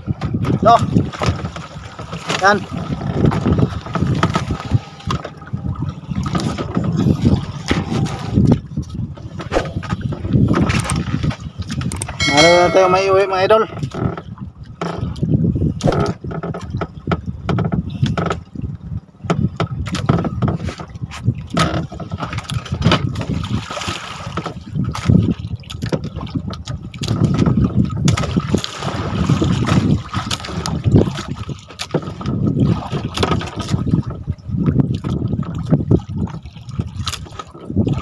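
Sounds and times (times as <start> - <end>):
knocks against hull: 0.0 - 5.5, 6.1 - 8.6, 13.8 - 18.5, 19.2 - 36.4
water sloshing around boat: 0.0 - 38.0.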